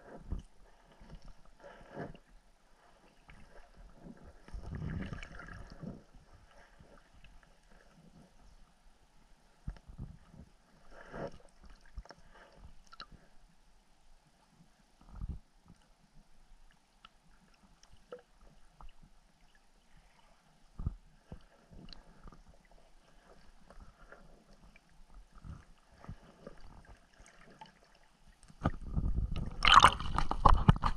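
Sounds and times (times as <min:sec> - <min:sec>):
soft low underwater thumps: 0:00.0 - 0:07.4, 0:09.6 - 0:10.6, 0:20.7 - 0:30.9.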